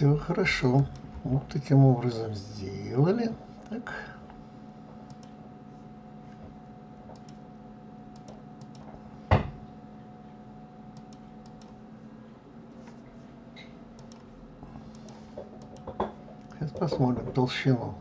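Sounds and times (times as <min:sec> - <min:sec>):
low electrical hum: 0:00.0 - 0:18.0
computer mouse clicks: 0:05.0 - 0:05.4, 0:07.1 - 0:07.4, 0:08.1 - 0:08.9, 0:10.9 - 0:11.8, 0:14.0 - 0:14.3, 0:14.9 - 0:15.9.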